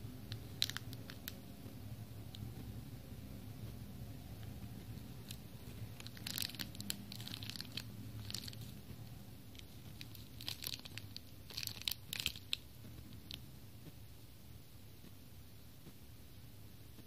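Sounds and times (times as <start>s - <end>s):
plastic packet crinkling: 0.3s - 1.4s, 5.1s - 8.9s, 9.5s - 12.6s.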